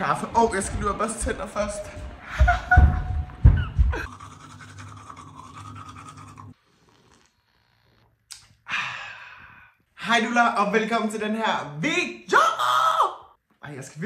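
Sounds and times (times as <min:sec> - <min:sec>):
toothbrush scrubbing teeth: 0:04.0 - 0:08.0
breathy exhale: 0:08.6 - 0:09.8.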